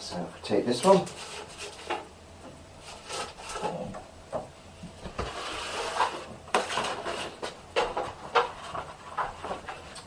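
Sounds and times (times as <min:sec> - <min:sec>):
paper rustling and sliding: 0:02.8 - 0:03.8, 0:05.1 - 0:10.0.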